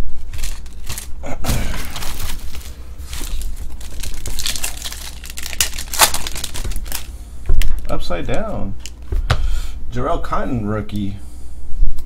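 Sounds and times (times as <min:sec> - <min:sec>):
foil wrappers rustling: 0:00.0 - 0:09.1.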